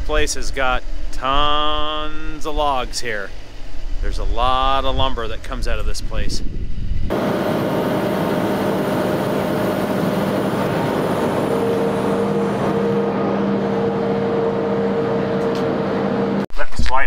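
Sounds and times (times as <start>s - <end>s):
higher tone: 7.1s - 16.4s
track loader engine droning: 7.1s - 16.4s.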